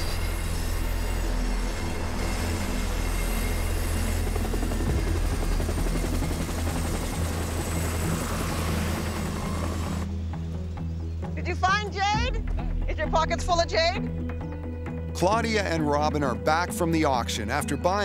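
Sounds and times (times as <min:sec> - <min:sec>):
helicopter rotor and engine: 0:00.0 - 0:12.3.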